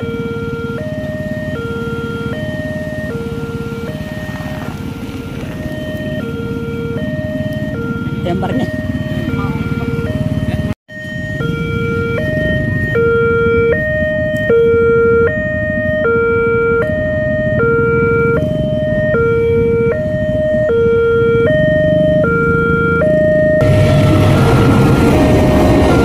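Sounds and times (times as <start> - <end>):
idling vehicles rumble: 0.0 - 26.0
two-tone level crossing alarm: 0.0 - 26.0
train rushing past: 23.6 - 26.0.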